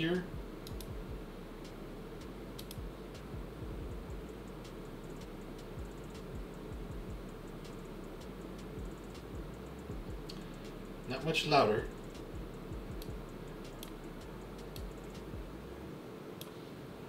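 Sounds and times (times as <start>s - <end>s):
cooling fans whirring: 0.0s - 17.0s
light irregular ticks: 0.2s - 15.5s.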